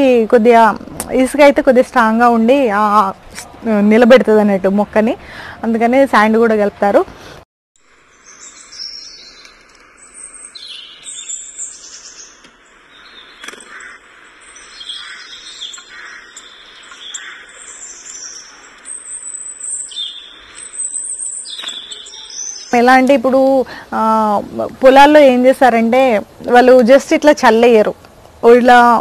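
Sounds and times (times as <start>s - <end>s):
faint steady hiss: 0.0s - 29.0s
small birds chirping: 8.0s - 27.8s.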